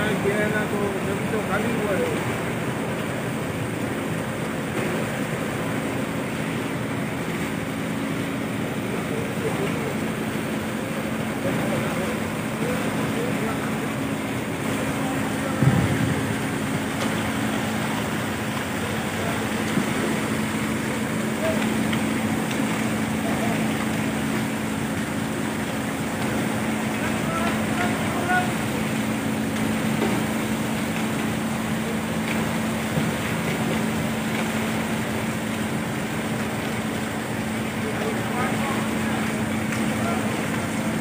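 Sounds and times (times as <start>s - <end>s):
crane engine running: 0.0s - 41.0s
dull thump: 15.6s - 16.4s.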